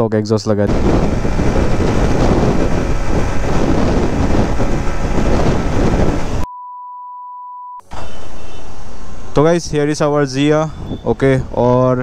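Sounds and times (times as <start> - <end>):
motorcycle engine cruising: 0.7 - 6.4
wind on microphone: 0.7 - 6.5, 7.9 - 12.0.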